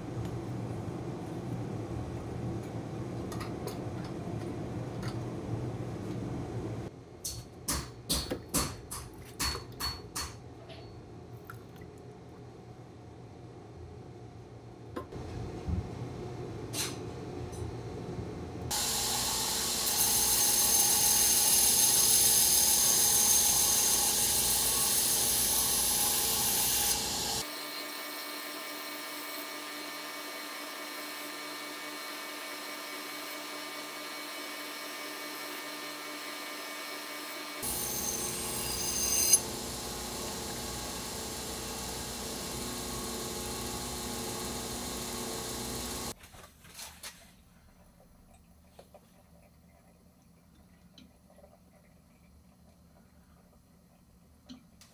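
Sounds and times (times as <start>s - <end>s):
belt grinder running: 18.7s - 27.5s, 37.6s - 46.2s
knife blade grinding on belt: 38.0s - 39.4s.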